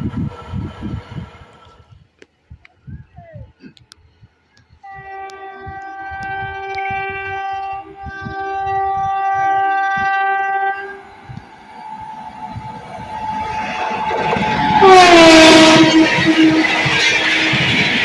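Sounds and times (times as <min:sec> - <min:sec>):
train rumble: 0:00.0 - 0:18.0
locomotive horn blasts: 0:04.8 - 0:11.1, 0:11.8 - 0:18.0.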